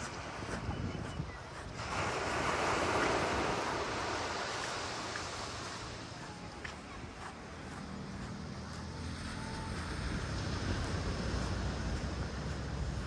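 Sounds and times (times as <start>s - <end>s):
wind rumble on microphone: 0.0s - 13.0s
wave breaking on beach: 1.7s - 6.9s.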